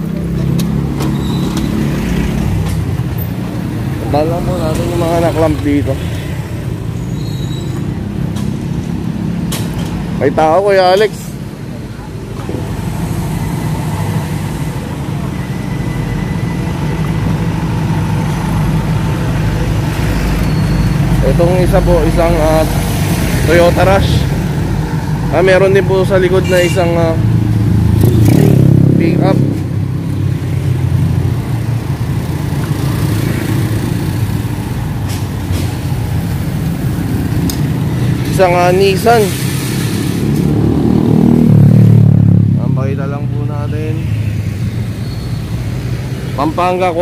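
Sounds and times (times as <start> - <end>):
low rumble of vehicles: 0.0 - 47.0
motorcycle engine passing: 40.2 - 43.0.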